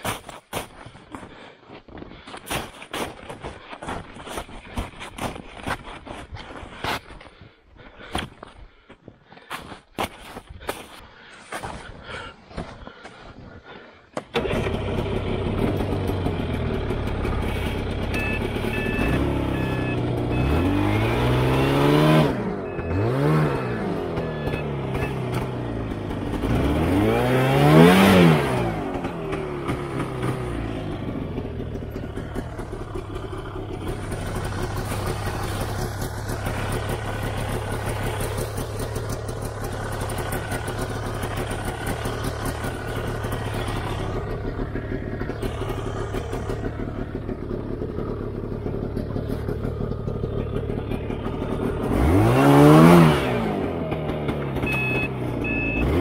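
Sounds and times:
snowmobile engine revving: 14.3s - 47.3s, 50.2s - 56.0s.

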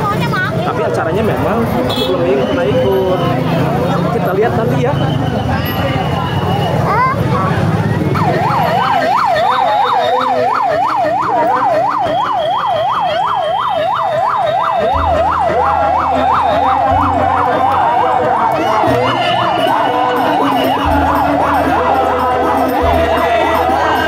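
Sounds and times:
electronic siren yelping: 7.9s - 24.0s.

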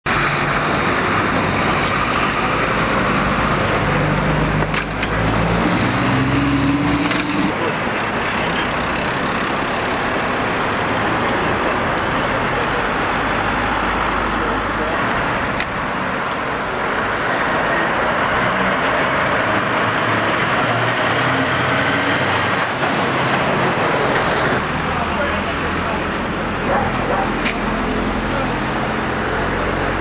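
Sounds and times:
passing vehicles rushing: 0.1s - 30.0s
vehicle engine passing by: 2.7s - 7.8s, 17.5s - 26.0s.

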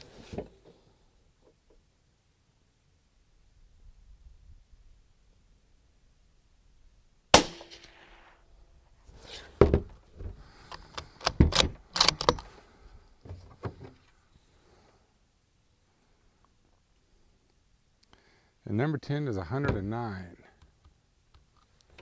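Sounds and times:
rifle shot: 7.3s - 8.4s
rifle bolt metallic clicks: 10.7s - 12.5s.

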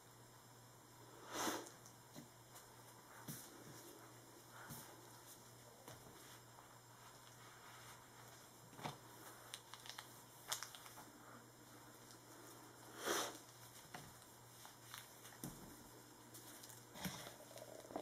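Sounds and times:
cloth rag wiping a tabletop: 6.1s - 9.4s.

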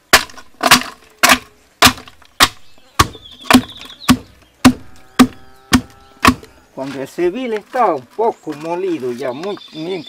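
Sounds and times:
pestle pounding in wooden mortar: 0.0s - 6.5s.

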